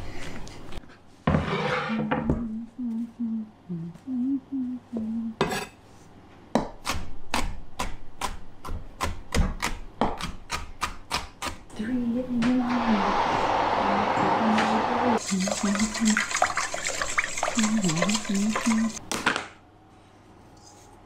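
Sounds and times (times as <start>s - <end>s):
person humming: 2.3s - 5.4s.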